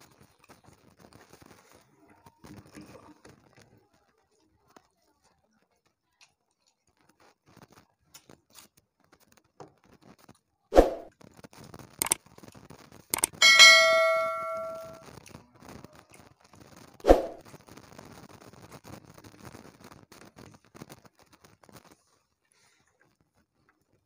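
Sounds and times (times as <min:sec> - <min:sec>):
faint eating sounds: 0:01.8 - 0:03.6
mouse clicks: 0:13.2 - 0:13.4
notification bell ding: 0:13.2 - 0:15.0.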